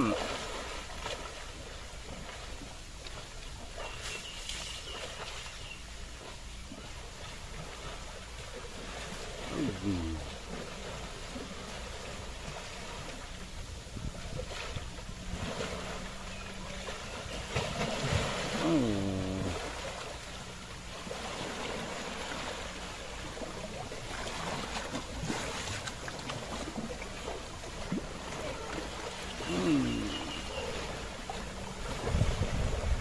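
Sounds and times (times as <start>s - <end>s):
water sloshing and splashing: 0.0s - 33.0s
elephant call: 29.3s - 31.0s.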